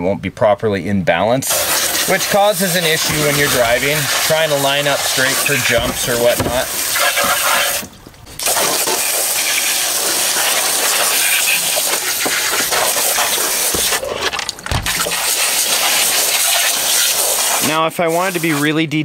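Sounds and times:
hose water spraying: 1.4 - 18.8.

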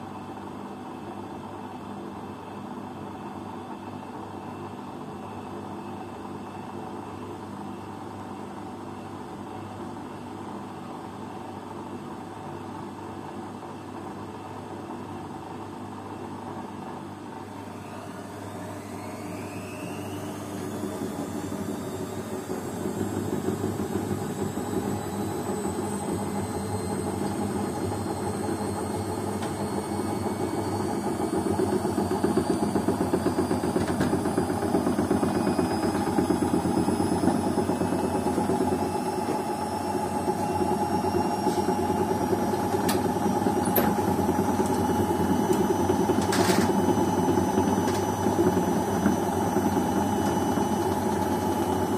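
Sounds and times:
washing machine running: 0.0 - 51.9
washing machine drum spinning: 17.6 - 51.9.

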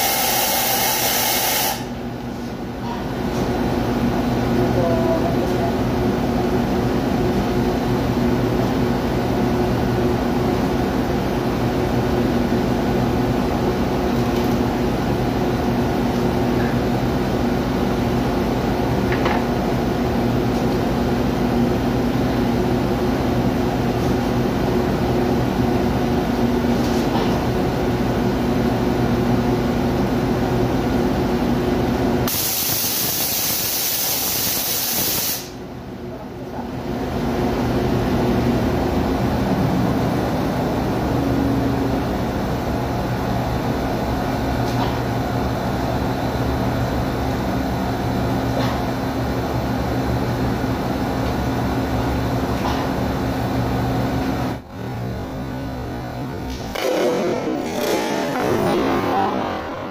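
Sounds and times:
loud hiss of escaping air: 0.0 - 1.9, 32.3 - 35.6
machinery humming: 37.1 - 59.9.

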